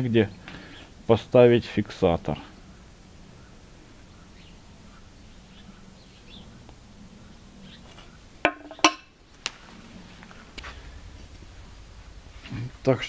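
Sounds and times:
metal disc clanking on steel: 8.4s - 9.2s.

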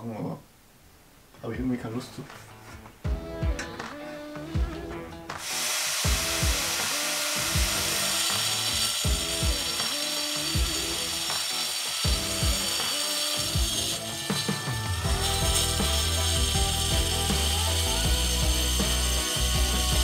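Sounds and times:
background music with beat: 2.3s - 20.0s
angle grinder cutting wall: 5.4s - 20.0s.

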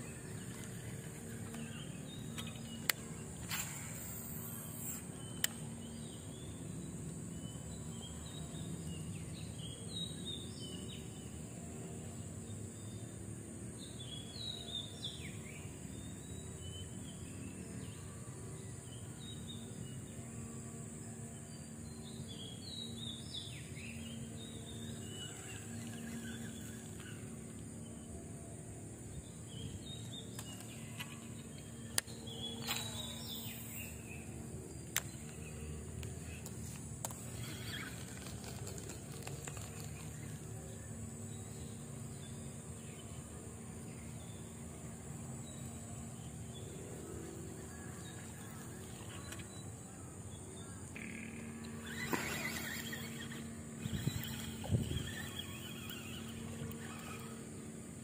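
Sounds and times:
small birds chirping: 0.0s - 11.4s, 21.5s - 28.1s, 29.2s - 58.0s
low wind rumble: 52.7s - 58.0s.

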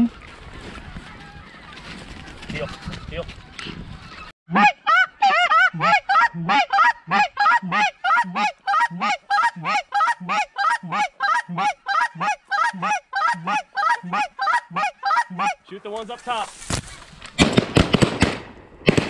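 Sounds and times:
goose call honks: 4.5s - 15.6s.

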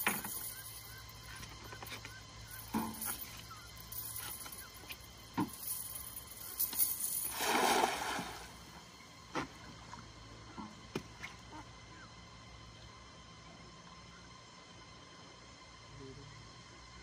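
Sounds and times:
cast net splashing on water: 7.3s - 8.7s.

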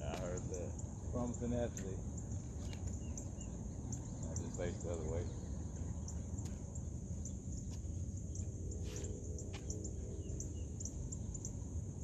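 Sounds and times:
high insect chirring: 0.0s - 12.0s.

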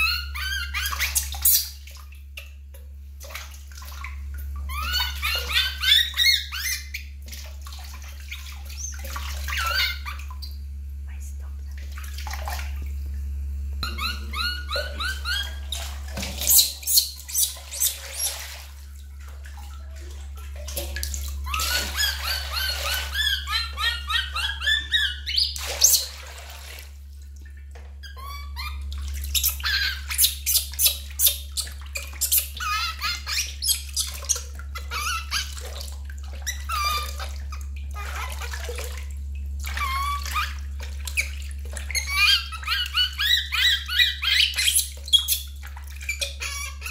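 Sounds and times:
infant monkey crying: 0.0s - 1.6s, 13.8s - 15.8s, 21.5s - 25.6s, 32.6s - 35.6s, 42.0s - 45.4s
water splashing in a steel basin: 0.0s - 10.7s, 11.6s - 46.9s.

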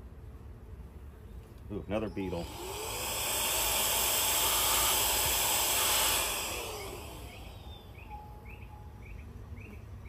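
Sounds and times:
cordless vacuum hissing: 2.2s - 8.1s
vacuum motor winding down: 2.2s - 8.2s.

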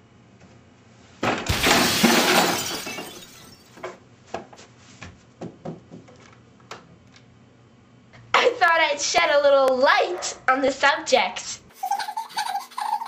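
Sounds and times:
glass shattering: 1.5s - 3.8s.

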